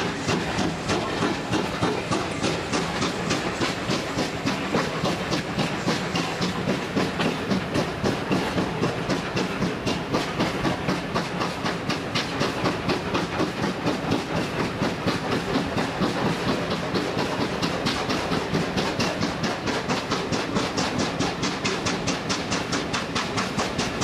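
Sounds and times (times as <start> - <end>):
steam locomotive chuffing: 0.0 - 24.0
train wheels rumbling: 0.0 - 24.0.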